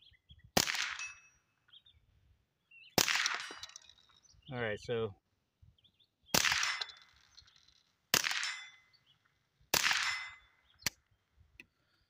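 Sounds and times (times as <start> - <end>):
suppressed rifle shots: 0.6 - 1.3, 3.0 - 3.9, 6.3 - 7.3, 8.1 - 8.8, 9.7 - 11.0.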